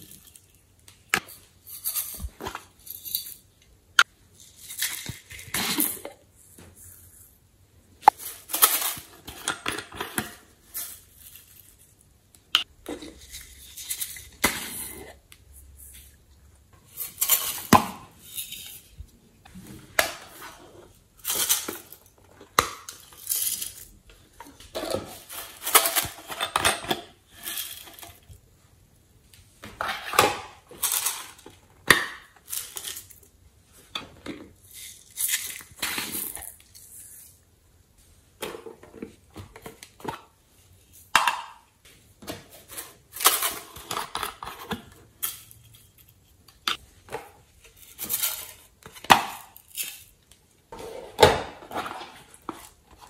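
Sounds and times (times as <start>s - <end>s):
plastic containers clinking and rattling: 19.5s - 28.4s, 29.6s - 36.7s, 41.1s - 53.0s.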